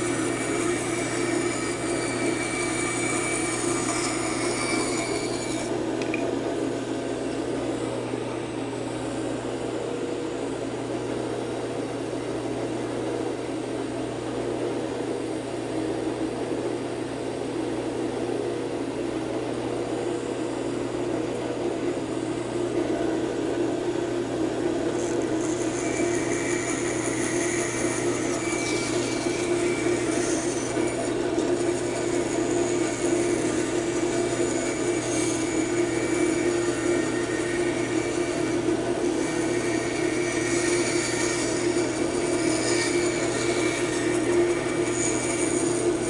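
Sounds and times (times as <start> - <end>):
band saw cutting wood: 0.0 - 6.3, 24.4 - 46.0
band saw humming: 0.0 - 13.5, 19.8 - 46.0.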